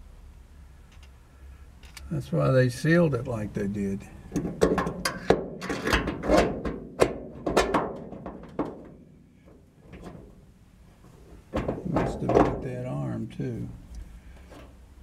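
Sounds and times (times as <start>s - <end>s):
metal hardware clicking and tapping: 4.3s - 9.0s.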